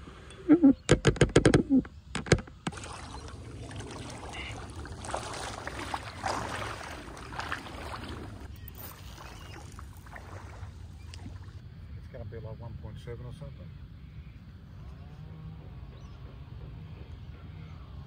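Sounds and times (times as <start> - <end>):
footsteps wading through water: 2.7 - 11.6.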